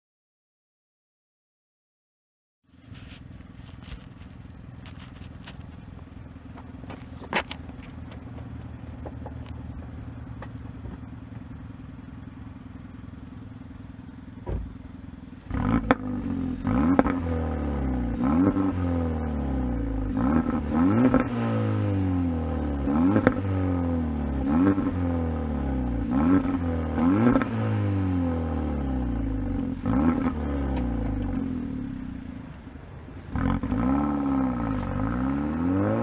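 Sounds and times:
car engine idling: 2.7 - 36.0
car engine revving: 2.9 - 36.0.

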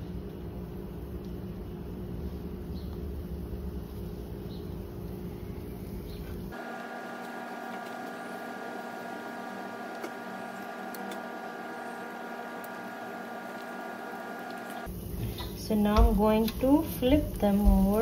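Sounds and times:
steady hum with fixed pitches: 2.8 - 18.0
batter sizzling in a pan: 11.4 - 18.0.

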